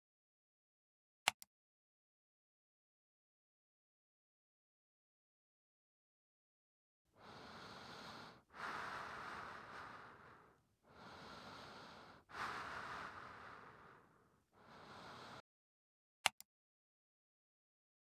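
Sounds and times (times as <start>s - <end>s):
dog breathing deeply: 7.2s - 15.4s.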